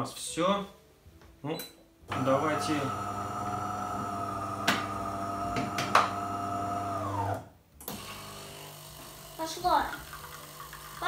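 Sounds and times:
coffee machine humming drone: 0:02.1 - 0:09.4, 0:10.0 - 0:11.0.

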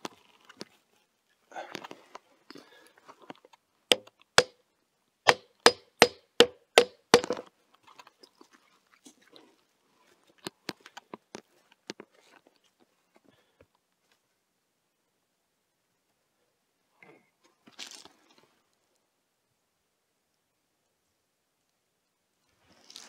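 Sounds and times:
hammer striking wooden post: 0:03.9 - 0:04.6, 0:05.3 - 0:07.4.

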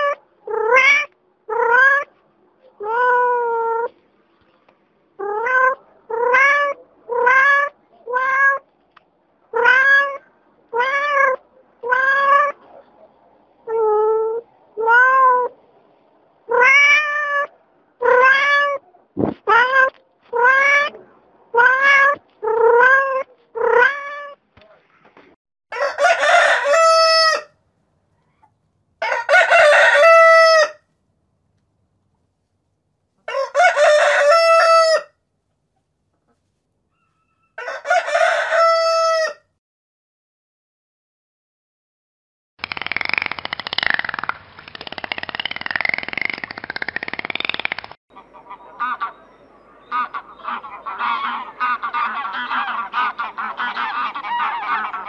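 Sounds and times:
rooster crowing: 0:25.7 - 0:27.5, 0:29.0 - 0:30.8, 0:33.3 - 0:35.2, 0:37.0 - 0:39.5.

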